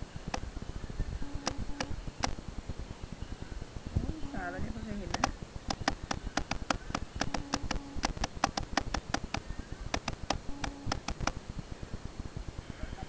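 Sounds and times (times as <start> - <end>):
sharp clicks from small object: 5.1 - 11.4.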